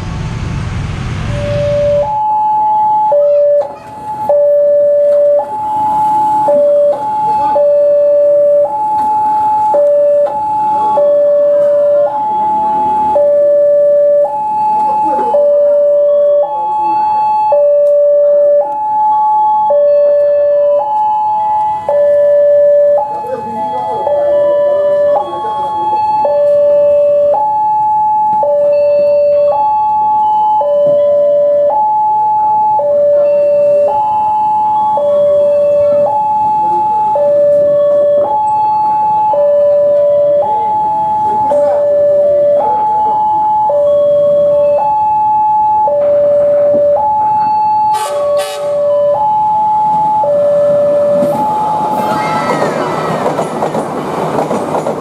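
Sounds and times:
level crossing two-tone alarm: 1.3s - 52.6s.

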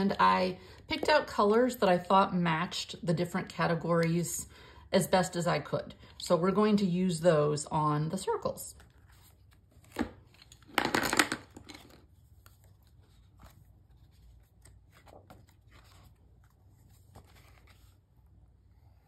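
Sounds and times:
paper pages rustling: 8.7s - 10.7s, 11.5s - 19.0s.

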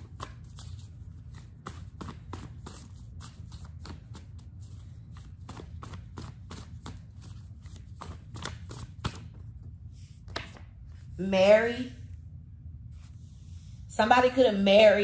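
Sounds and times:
cards being shuffled: 0.0s - 9.5s, 10.2s - 11.0s
low steady hum: 0.0s - 15.0s.

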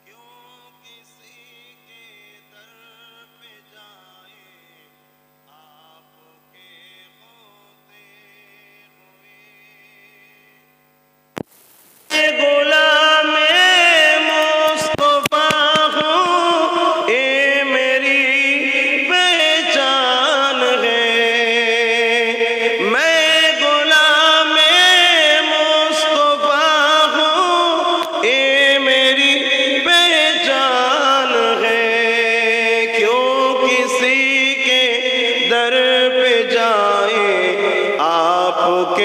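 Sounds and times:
man chanting devotional melody: 0.0s - 10.7s, 12.1s - 39.0s.

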